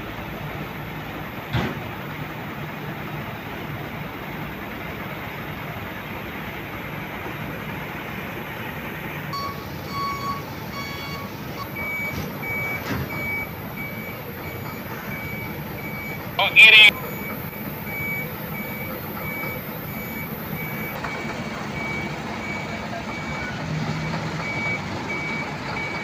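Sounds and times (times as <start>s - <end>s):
truck diesel engines running: 0.0s - 26.0s
high reversing alarm beeping: 9.3s - 23.6s
low reversing alarm beeping: 9.3s - 26.0s.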